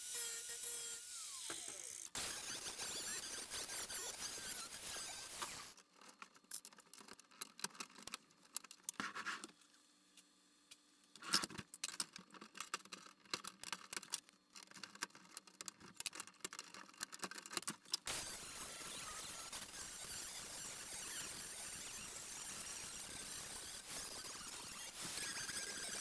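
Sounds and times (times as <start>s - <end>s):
angle grinder grinding: 0.0s - 5.8s, 18.1s - 26.0s
scratchy clicks and rustles: 11.2s - 18.1s.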